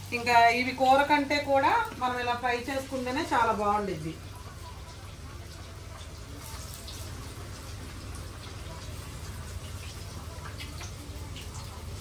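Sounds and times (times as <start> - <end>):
fish deep-frying in oil: 0.0 - 12.0.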